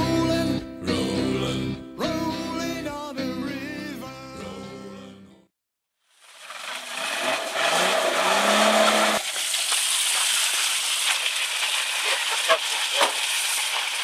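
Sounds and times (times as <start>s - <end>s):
wheels spinning in mud: 6.2s - 14.0s
suv engine revving: 7.0s - 9.2s.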